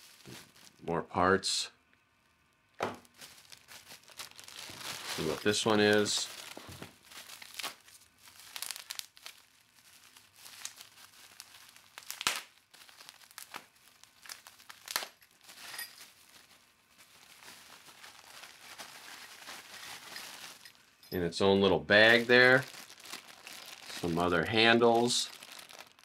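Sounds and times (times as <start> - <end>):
bubble wrap crinkling: 0.0 - 0.9, 3.0 - 26.0
sharp plastic crackles: 2.7 - 15.6, 22.0 - 26.0.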